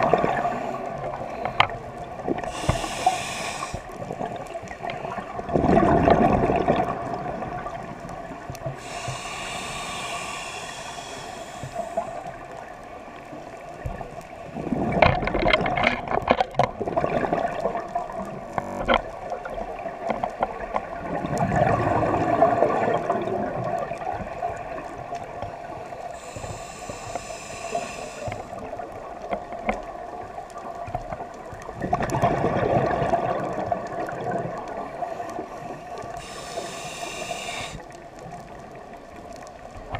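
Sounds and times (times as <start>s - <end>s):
regulator hissing inhalation: 2.4s - 4.0s, 8.8s - 12.4s, 26.2s - 28.6s, 36.1s - 37.9s.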